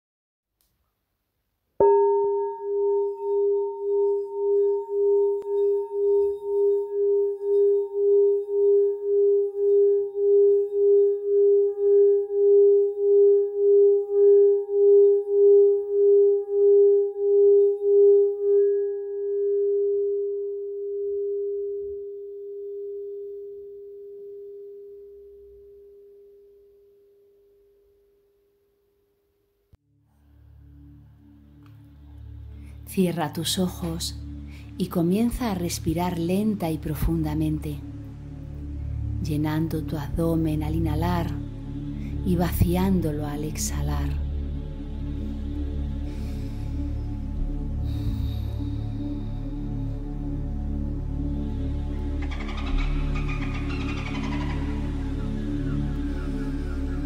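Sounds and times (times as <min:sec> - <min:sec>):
singing bowl ringing: 0:01.8 - 0:27.4, 0:50.2 - 0:57.0.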